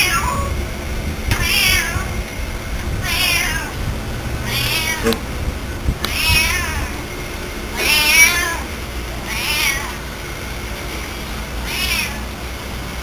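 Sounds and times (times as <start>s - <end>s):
cat meowing: 3.0s - 3.7s, 4.5s - 5.2s, 6.1s - 6.9s, 7.8s - 8.6s, 9.3s - 10.0s, 11.6s - 12.2s.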